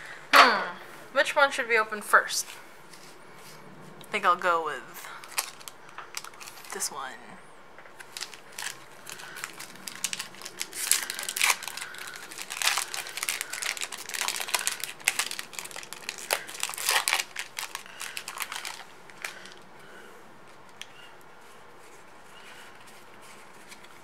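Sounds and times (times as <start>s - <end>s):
foil wrapper crinkling and tearing: 5.1s - 7.2s, 8.0s - 19.6s.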